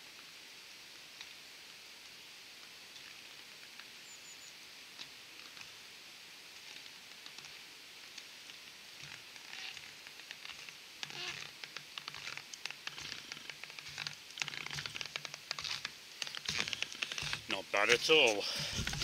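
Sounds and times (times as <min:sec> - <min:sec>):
stilt feet crunching in snow: 0:08.5 - 0:19.0.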